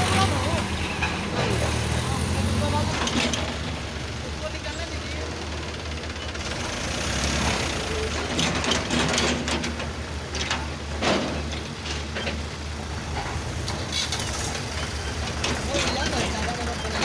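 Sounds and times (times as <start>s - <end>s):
excavator bucket clanking: 0.0s - 1.9s, 2.8s - 3.8s, 7.9s - 17.0s
diesel machinery humming: 0.0s - 17.0s.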